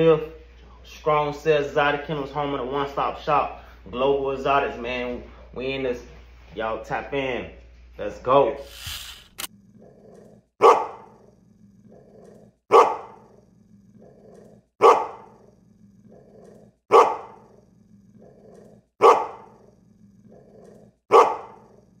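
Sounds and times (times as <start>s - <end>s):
dog barking: 10.6s - 11.2s, 12.7s - 13.3s, 14.8s - 15.4s, 16.9s - 17.5s, 19.0s - 19.6s, 21.1s - 21.8s.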